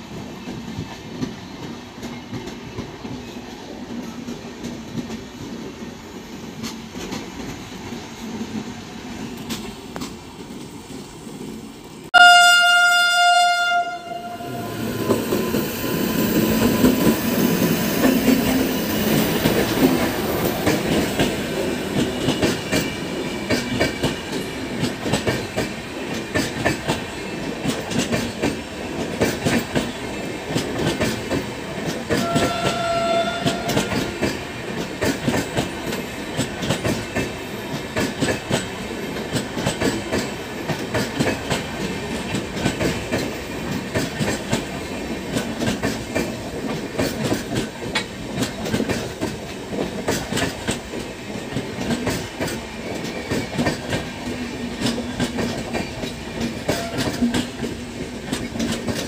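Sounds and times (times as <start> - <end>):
train horn: 12.1 - 14.9, 32.1 - 34.3, 56.7 - 57.4
train wheels clattering over rail joints: 16.4 - 59.0.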